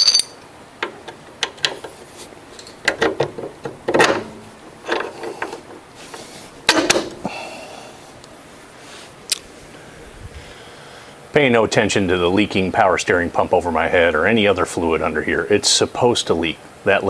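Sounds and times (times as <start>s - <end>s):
metallic ring: 0.0s - 0.4s
metal clinks and knocks: 0.0s - 1.8s.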